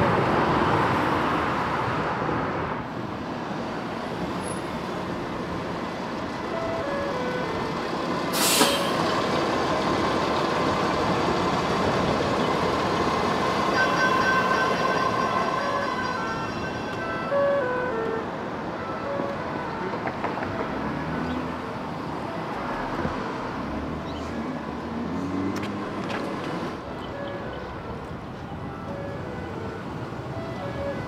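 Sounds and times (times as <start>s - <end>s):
street traffic: 0.0s - 31.0s
short loud hiss: 8.4s - 9.0s.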